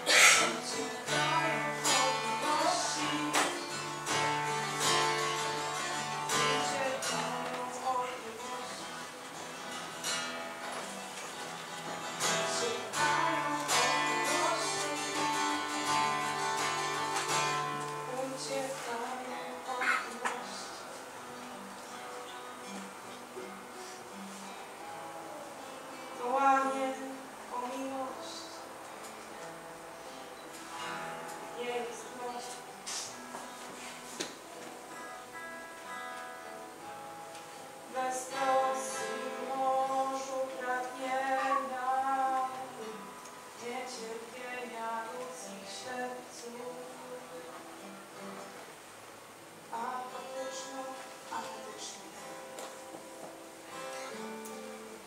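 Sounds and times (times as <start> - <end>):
person singing long notes: 0.0 - 9.3, 12.1 - 21.0, 23.4 - 28.8, 37.8 - 48.4
acoustic guitar strumming chords: 0.0 - 55.0.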